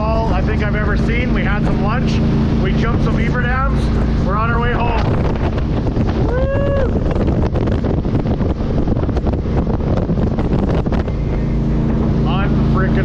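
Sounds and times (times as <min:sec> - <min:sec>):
boat engine running: 0:00.0 - 0:13.0
wind buffeting microphone: 0:00.0 - 0:13.0
person shouting: 0:06.3 - 0:07.0.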